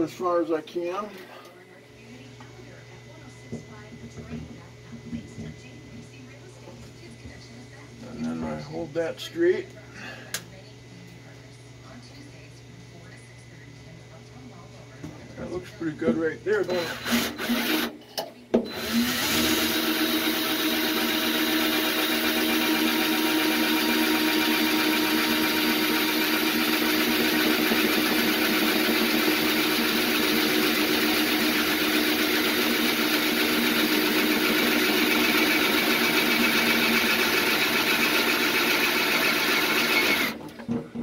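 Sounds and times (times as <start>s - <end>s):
cordless drill boring metal: 16.6s - 17.9s, 18.6s - 40.4s.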